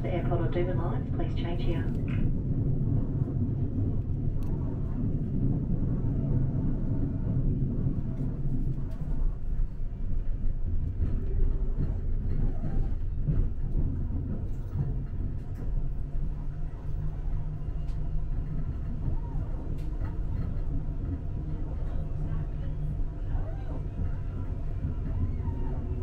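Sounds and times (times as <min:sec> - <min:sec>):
train carriage rumble: 0:00.0 - 0:26.0.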